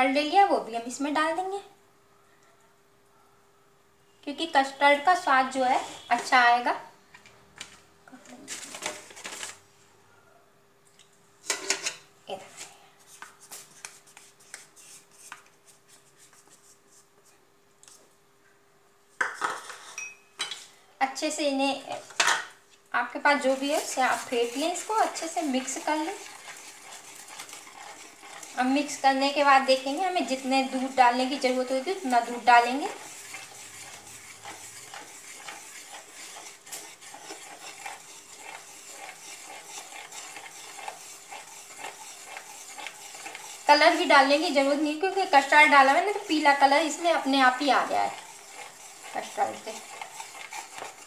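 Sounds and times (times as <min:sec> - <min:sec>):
spatula scraping plastic bowl: 0:05.5 - 0:06.4, 0:23.2 - 0:51.0.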